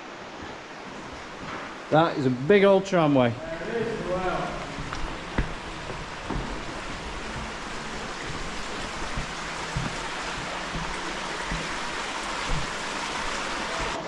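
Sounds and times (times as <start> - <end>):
running water rushing: 0.0 - 14.0
soft knocks: 3.7 - 14.0.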